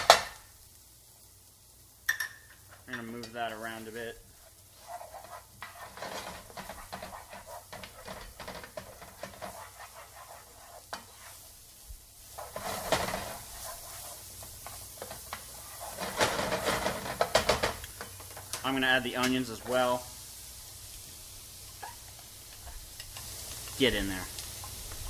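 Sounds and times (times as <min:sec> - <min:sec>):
garlic sizzling in oil: 0:00.0 - 0:25.0
utensil scraping a pan: 0:02.6 - 0:20.0.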